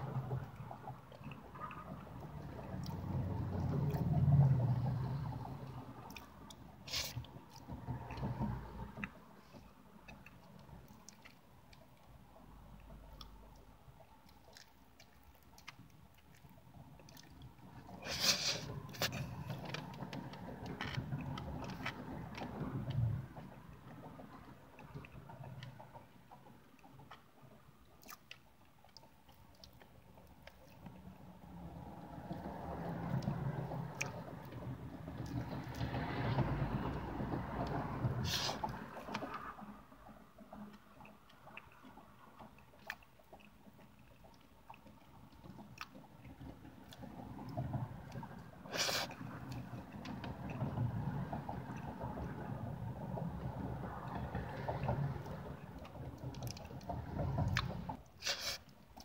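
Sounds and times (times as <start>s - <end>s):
wet chewing and mouth smacking: 6.0s - 23.0s, 24.3s - 31.2s, 37.6s - 47.1s, 55.5s - 59.0s.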